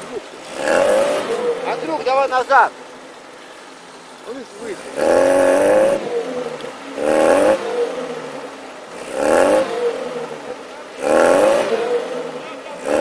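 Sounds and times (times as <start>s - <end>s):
car engine revving hard: 0.0s - 2.7s, 4.6s - 13.0s
wheels spinning in snow: 4.4s - 13.0s.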